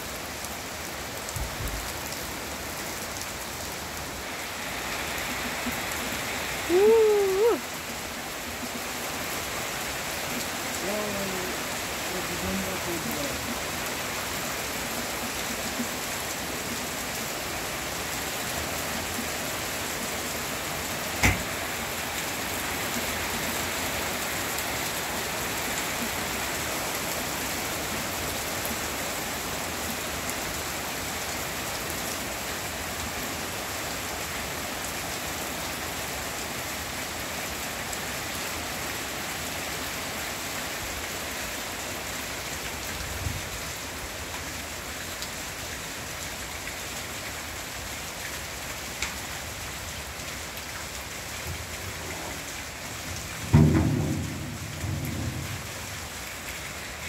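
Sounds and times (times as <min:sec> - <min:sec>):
heavy rain on leaves: 0:00.0 - 0:57.0
sharp knock: 0:53.5 - 0:55.8.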